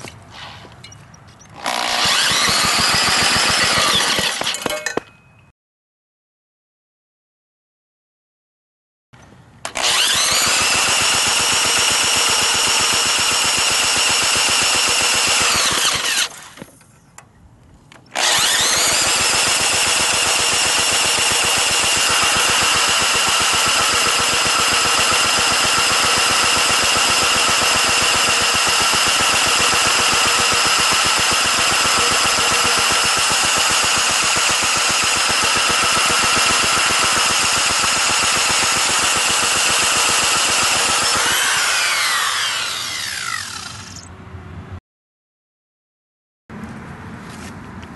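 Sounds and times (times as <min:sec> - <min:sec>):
power tool motor whining: 0:01.6 - 0:04.5, 0:09.7 - 0:16.5, 0:18.2 - 0:44.1.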